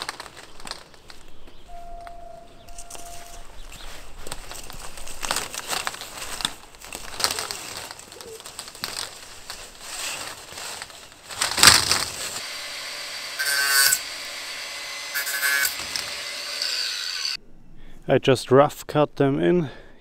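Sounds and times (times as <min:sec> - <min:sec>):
plastic conduit rustling and scraping: 0:00.0 - 0:01.6, 0:02.9 - 0:12.4
short buzzing bursts: 0:12.4 - 0:17.4.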